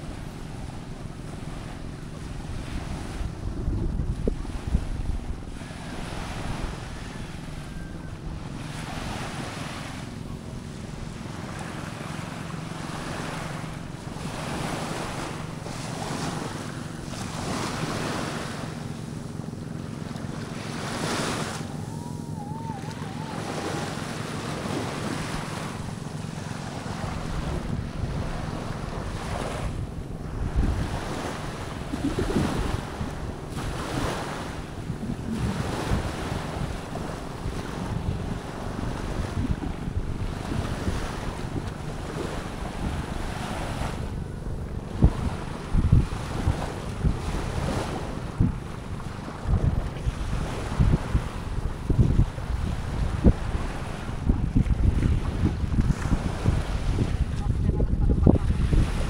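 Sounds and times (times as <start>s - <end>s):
small waves washing on sand: 0.0s - 59.0s
wind buffeting microphone: 0.0s - 59.0s.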